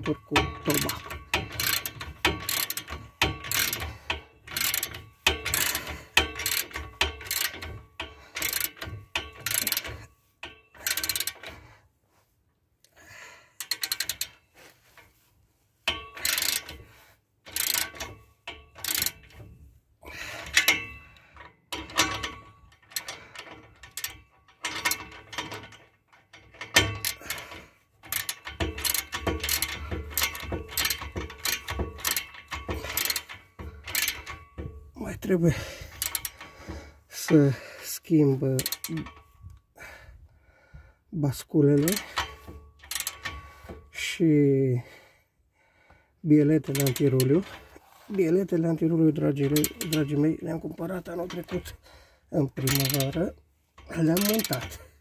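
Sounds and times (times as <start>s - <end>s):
socket ratchet clicking: 0.0s - 11.6s, 13.6s - 14.4s, 15.8s - 19.5s, 20.3s - 34.9s, 35.6s - 37.1s, 38.5s - 39.6s, 41.8s - 44.0s, 46.6s - 47.8s, 49.2s - 51.8s, 52.5s - 55.0s.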